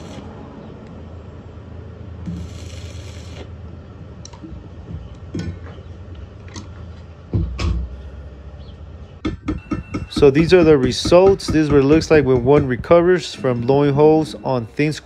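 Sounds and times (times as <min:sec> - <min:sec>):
welding arc crackling and hissing: 0:00.0 - 0:00.4, 0:02.2 - 0:03.6.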